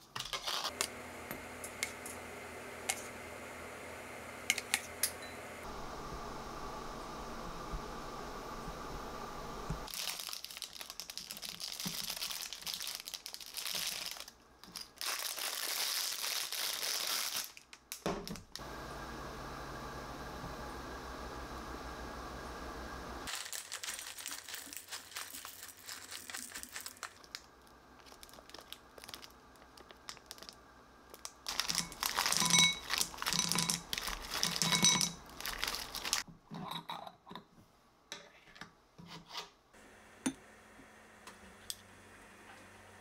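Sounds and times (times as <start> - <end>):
plastic packaging crinkling: 9.9 - 18.6, 23.3 - 36.3.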